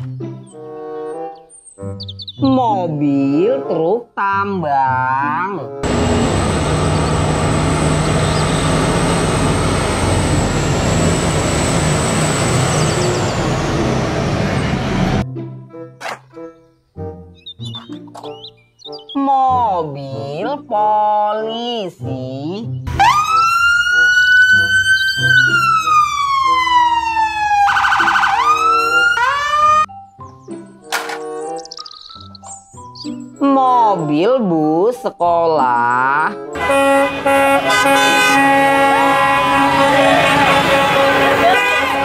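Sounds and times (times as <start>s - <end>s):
background music: 0.0s - 5.9s, 15.2s - 42.0s
high whine: 5.8s - 15.2s
police siren wailing: 5.8s - 15.2s, 22.9s - 29.9s, 36.6s - 42.0s
truck diesel engine drone: 5.8s - 15.2s, 36.6s - 42.0s.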